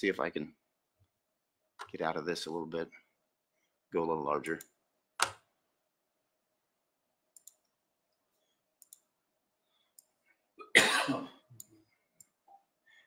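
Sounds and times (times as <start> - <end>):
computer mouse clicks: 7.4 - 7.7, 8.8 - 9.1.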